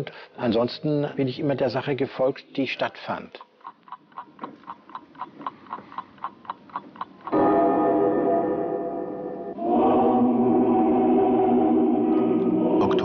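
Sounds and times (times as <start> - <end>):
held bell-like musical chord: 7.4 - 13.0.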